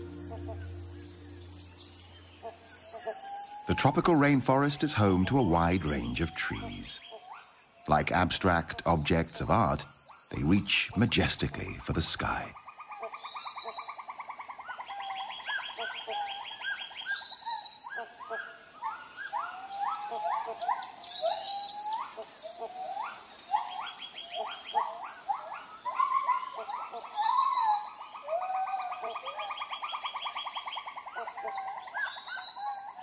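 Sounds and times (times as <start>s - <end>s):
rapid pulsed animal trills: 0.0s - 3.5s.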